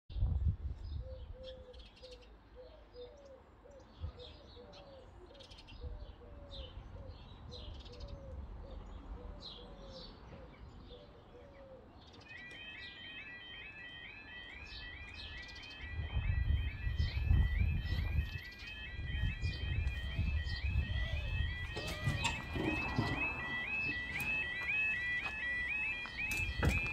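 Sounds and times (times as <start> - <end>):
birds chirping and singing: 0.2 - 26.9
level crossing warning alarm: 11.2 - 26.9.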